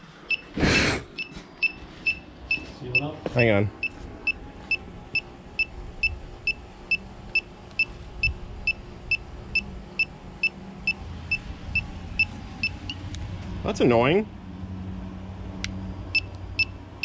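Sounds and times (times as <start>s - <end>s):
leak detector beeping: 0.3s - 0.5s, 1.2s - 13.0s, 16.1s - 16.8s.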